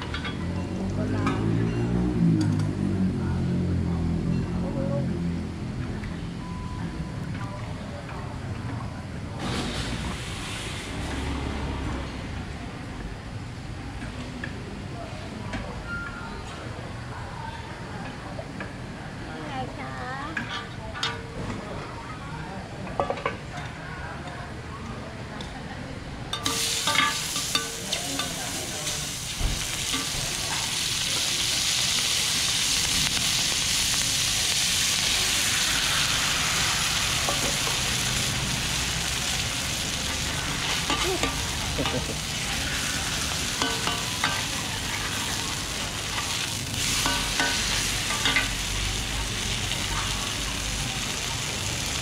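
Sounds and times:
batter sizzling in oil: 0:26.4 - 0:52.0.

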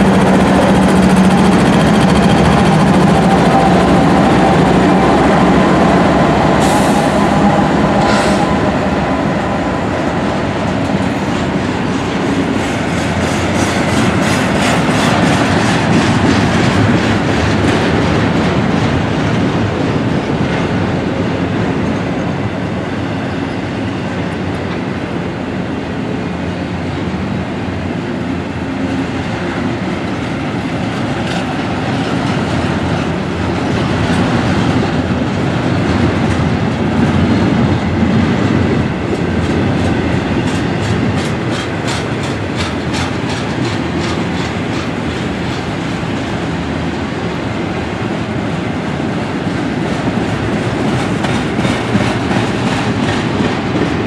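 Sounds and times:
steel wheels rumbling: 0:00.0 - 0:22.4, 0:26.7 - 0:54.0
locomotive engine hum: 0:00.0 - 0:54.0
wheels clacking over rail joints: 0:30.7 - 0:46.7, 0:49.7 - 0:54.0.

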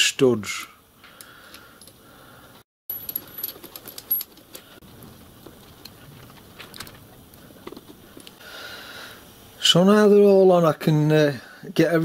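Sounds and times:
small metal parts clicking: 0:02.9 - 0:04.8.

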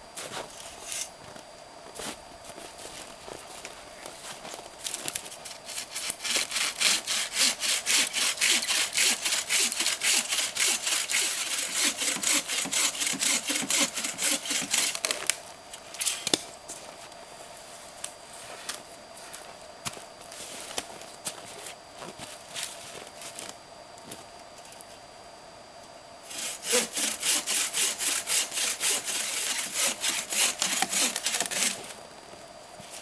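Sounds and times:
bow saw cutting log: 0:05.5 - 0:15.0, 0:26.3 - 0:31.9.

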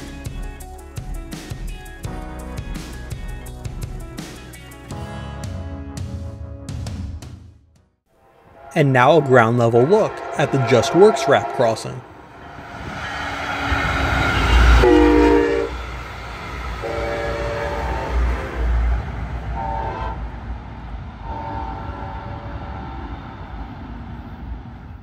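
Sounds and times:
train horn blasts: 0:08.1 - 0:12.3, 0:13.1 - 0:15.8, 0:16.8 - 0:18.9, 0:19.5 - 0:20.3, 0:21.2 - 0:23.1
train rumble passing: 0:08.1 - 0:25.0.

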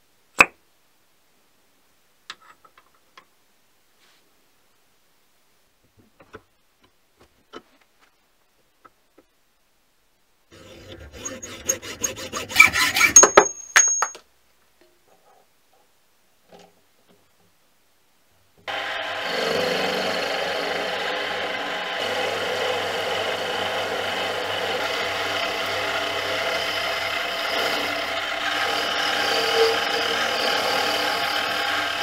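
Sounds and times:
hacksaw cutting steel: 0:10.6 - 0:14.0, 0:18.7 - 0:32.0
high metallic ring: 0:13.1 - 0:14.2
lathe running: 0:18.7 - 0:32.0.

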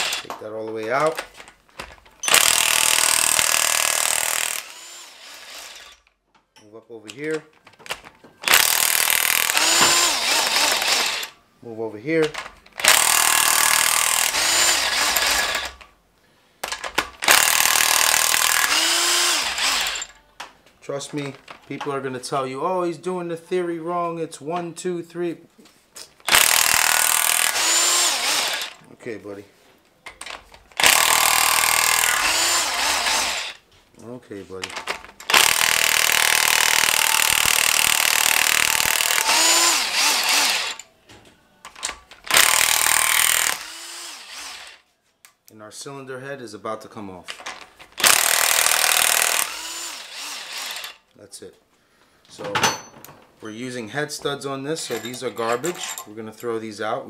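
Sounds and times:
impact wrench hammering bolts: 0:00.0 - 0:06.0, 0:07.1 - 0:11.3, 0:12.2 - 0:15.8, 0:16.6 - 0:20.2, 0:26.2 - 0:28.8, 0:30.1 - 0:33.6, 0:34.6 - 0:40.9, 0:41.7 - 0:44.0, 0:47.3 - 0:51.0.

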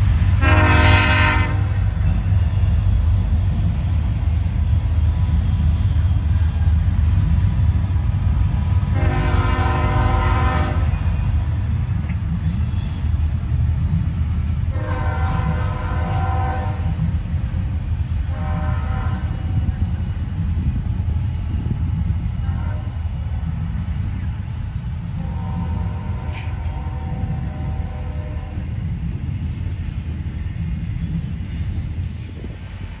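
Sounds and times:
passing train rumble: 0:00.0 - 0:33.0
locomotive air horn blasts: 0:00.4 - 0:01.9, 0:08.9 - 0:11.0, 0:14.7 - 0:16.9, 0:18.3 - 0:19.3, 0:25.2 - 0:28.6.

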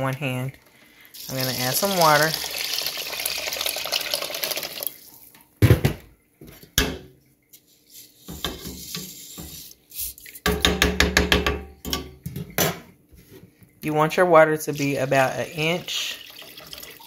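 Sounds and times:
water pouring into a pot: 0:01.1 - 0:05.2, 0:14.7 - 0:17.0
strainer scraping a pot: 0:07.6 - 0:10.3.

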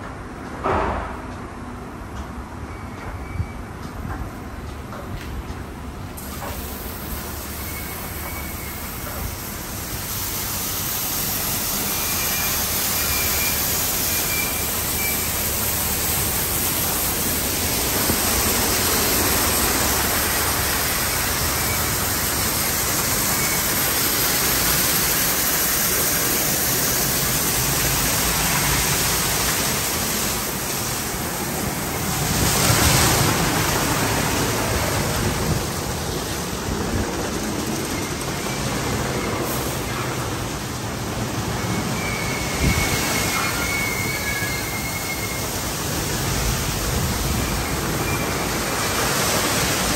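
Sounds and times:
water spray pouring onto car: 0:06.2 - 0:36.1.

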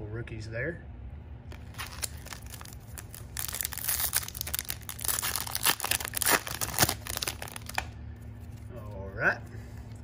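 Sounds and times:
foil wrapper crinkling and tearing: 0:01.5 - 0:08.6.

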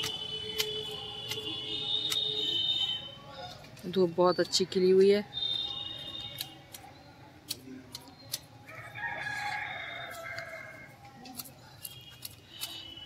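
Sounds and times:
hedge shears snipping: 0:00.0 - 0:02.4, 0:06.0 - 0:08.6, 0:10.0 - 0:13.0
rooster crowing: 0:08.7 - 0:10.9.

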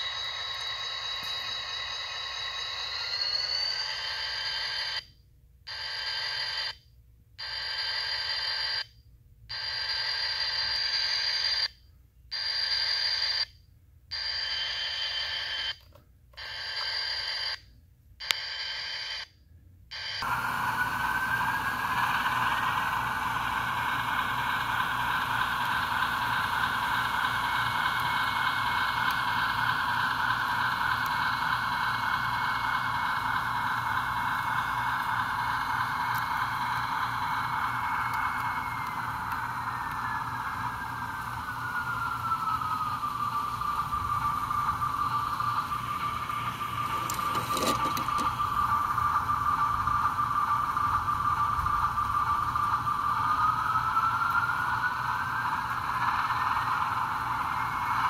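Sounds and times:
diesel engine sound: 0:00.0 - 0:04.8, 0:20.0 - 0:58.0
steady electronic tone: 0:20.2 - 0:58.0.

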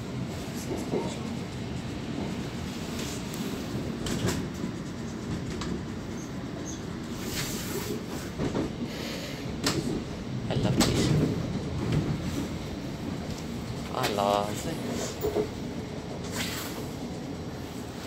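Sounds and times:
train wheels rumbling on rail: 0:00.0 - 0:18.0
track clicks and knocks: 0:03.9 - 0:06.4, 0:09.6 - 0:16.3.

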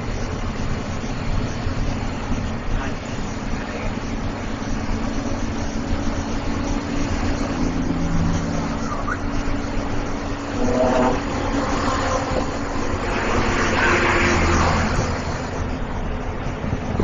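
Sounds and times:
bus engine low hum: 0:00.0 - 0:17.0
tyre and wind noise: 0:08.7 - 0:17.0.

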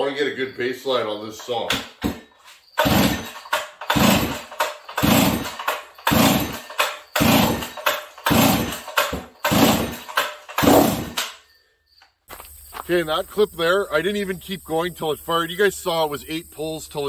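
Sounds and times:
engine cranking without catching: 0:01.4 - 0:11.4
chainsaw recoil starter pulls: 0:02.8 - 0:11.3.

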